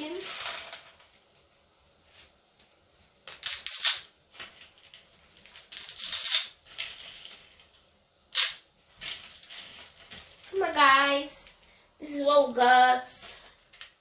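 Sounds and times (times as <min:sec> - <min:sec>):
dry spaghetti snapping: 0:02.6 - 0:07.4.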